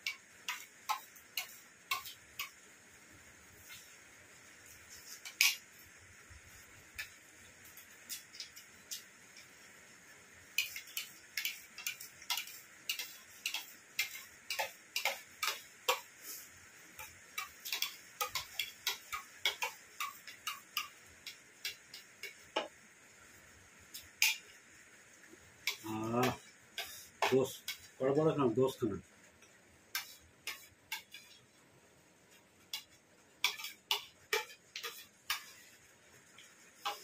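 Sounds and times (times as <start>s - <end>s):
spoons clicking and scraping plates: 0.0s - 2.6s, 4.7s - 5.9s, 6.5s - 9.5s, 10.5s - 22.8s, 23.9s - 24.6s, 25.6s - 28.4s, 29.4s - 31.5s, 32.3s - 37.0s.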